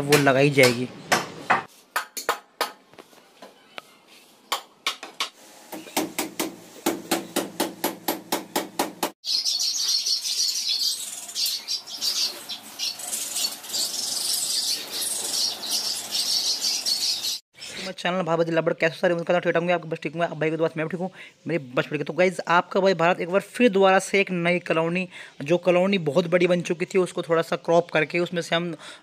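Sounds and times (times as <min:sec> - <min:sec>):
hammer nailing wood: 0:04.9 - 0:09.1
budgerigars chirping: 0:09.2 - 0:17.8.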